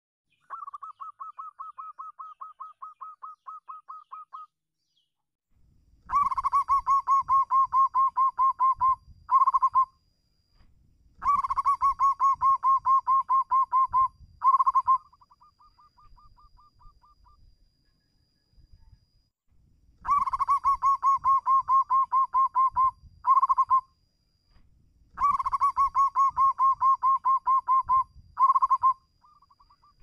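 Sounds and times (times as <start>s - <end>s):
dove cooing: 0.5s - 4.4s, 6.1s - 9.9s, 11.2s - 17.2s, 20.0s - 23.8s, 25.2s - 30.0s.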